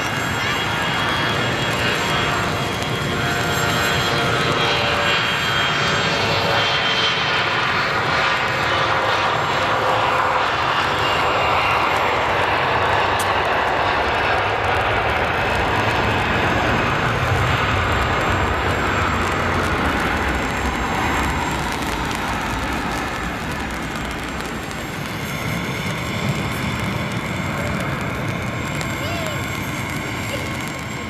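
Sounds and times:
faint multi-tone engine whine: 0.0s - 31.0s
jet engines at takeoff thrust: 0.0s - 31.0s.

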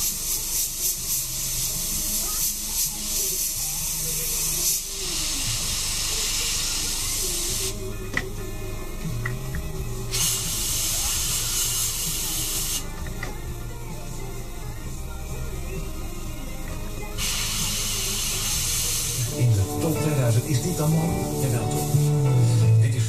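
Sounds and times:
airbrush air hiss: 0.0s - 8.0s, 9.9s - 13.0s, 17.1s - 22.8s.

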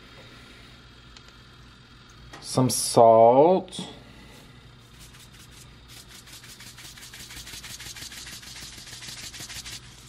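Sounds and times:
salt shaker rattling into metal bowl: 4.9s - 10.0s.

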